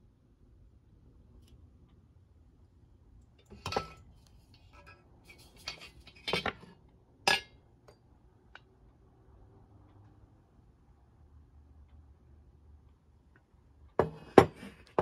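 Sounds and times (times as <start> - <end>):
brass stove parts clinking: 3.4 - 4.1, 4.7 - 7.6.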